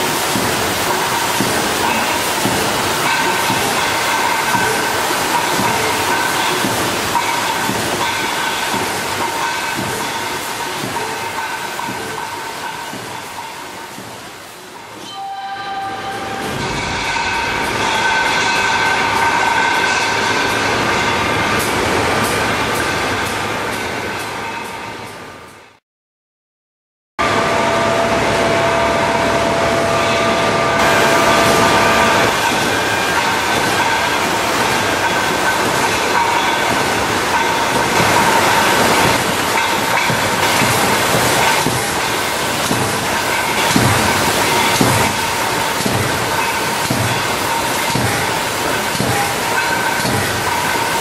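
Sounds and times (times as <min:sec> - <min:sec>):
plant machinery whine: 0:27.2 - 0:50.7.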